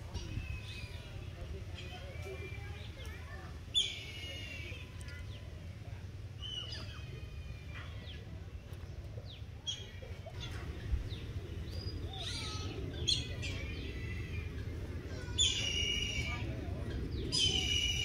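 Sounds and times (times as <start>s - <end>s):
birds chirping: 0.0s - 5.7s, 6.3s - 18.0s
low background rumble: 4.6s - 18.0s.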